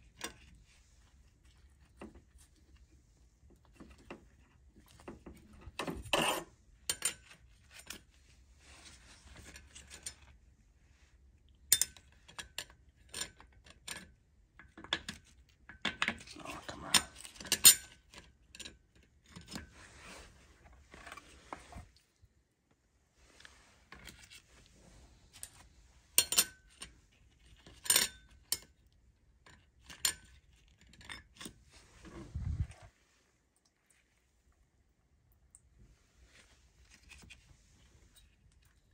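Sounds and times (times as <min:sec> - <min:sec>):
steel parts clinking: 0:26.2 - 0:26.6.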